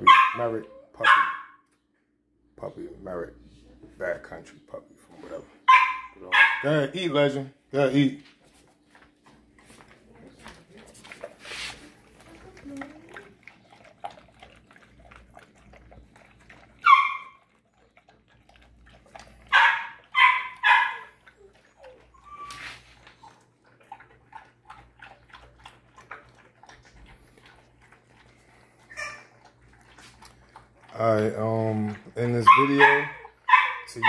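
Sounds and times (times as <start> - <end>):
dog barking: 0.0 - 1.6, 5.6 - 6.8, 16.8 - 17.4, 19.4 - 21.2, 32.4 - 34.0
dog chewing kibble from metal bowl: 6.6 - 34.0.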